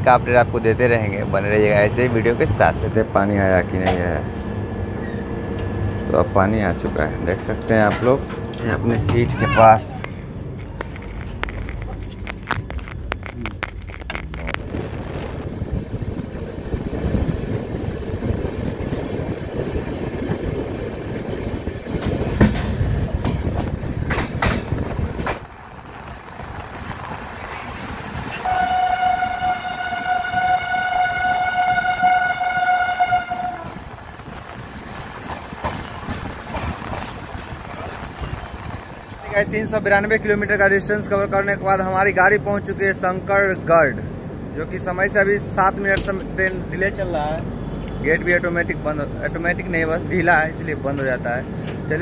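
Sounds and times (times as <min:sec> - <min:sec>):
train rumble and wheel clatter: 0:00.0 - 0:52.0
train horn: 0:28.4 - 0:33.8.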